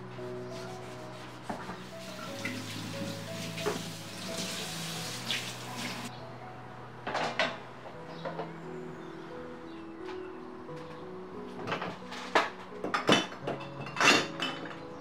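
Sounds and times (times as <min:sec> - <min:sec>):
background music: 0:00.0 - 0:15.0
chopping board being scrubbed: 0:00.5 - 0:06.1
tap water running into sink: 0:02.0 - 0:06.1.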